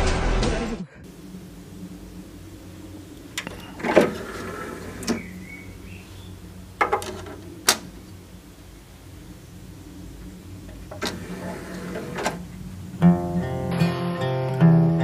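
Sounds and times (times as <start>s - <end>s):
low steady hum: 0.8s - 15.0s
disc tray motor whine: 1.1s - 15.0s
tray stopping clunk: 2.5s - 6.0s, 6.8s - 8.1s, 10.6s - 13.9s.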